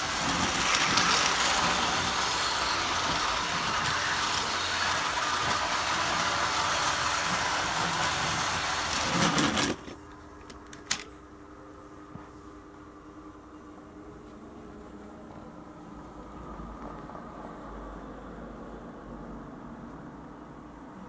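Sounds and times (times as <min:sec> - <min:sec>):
toy train motor running: 0:00.0 - 0:09.8.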